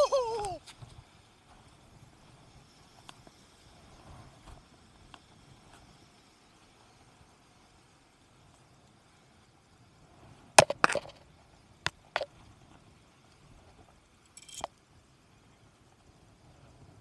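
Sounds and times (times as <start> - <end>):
handling knocks and clinks: 10.6 - 11.2, 14.3 - 14.7.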